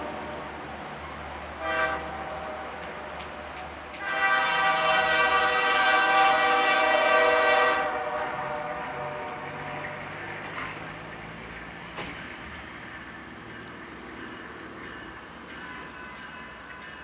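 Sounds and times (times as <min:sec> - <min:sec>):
low rumble of train: 0:00.0 - 0:17.0
locomotive air horn blasts: 0:01.6 - 0:02.8, 0:03.4 - 0:09.8.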